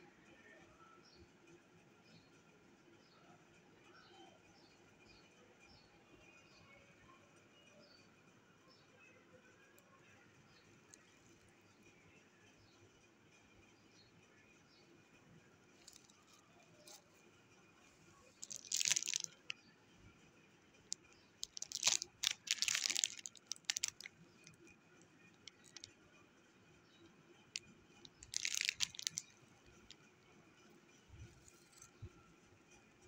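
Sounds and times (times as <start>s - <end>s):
plastic bags crinkling: 15.8s - 17.0s, 18.4s - 19.5s, 21.4s - 24.6s, 25.4s - 25.9s, 28.1s - 30.0s.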